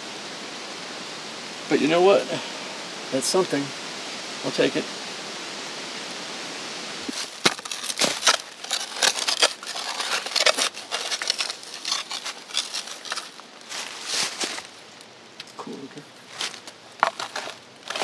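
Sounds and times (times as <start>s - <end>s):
creek water rushing: 0.0s - 7.5s
soil being dug: 7.1s - 15.6s, 16.2s - 18.0s
dry leaves crackling: 7.1s - 18.0s.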